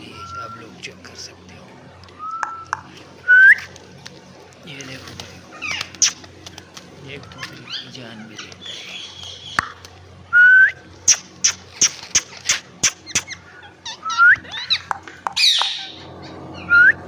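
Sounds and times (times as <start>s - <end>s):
parakeet screeching: 5.4s - 6.3s, 7.2s - 9.6s, 11.0s - 16.8s
parakeet harsh squawk: 11.1s - 16.7s.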